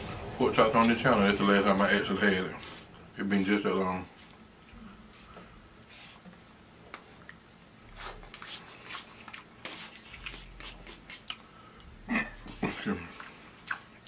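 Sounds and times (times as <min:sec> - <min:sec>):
man chewing noodles: 0:04.2 - 0:14.0
wet mouth clicks and smacks: 0:06.3 - 0:07.5, 0:13.2 - 0:14.0.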